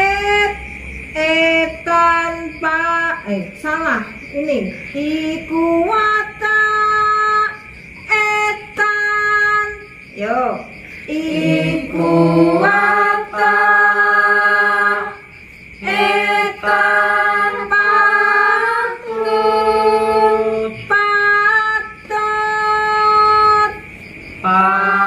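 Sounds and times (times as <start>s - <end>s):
group singing unaccompanied: 11.0s - 23.8s, 24.4s - 25.0s.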